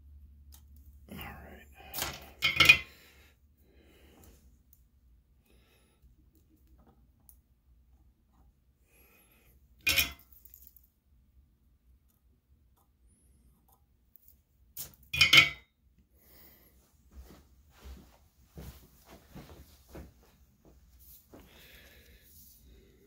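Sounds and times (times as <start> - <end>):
metal tools clattering: 2.0 - 3.0, 9.8 - 10.7, 15.1 - 15.6
metal tools clinking: 2.1 - 3.0, 9.8 - 10.8, 15.1 - 15.6.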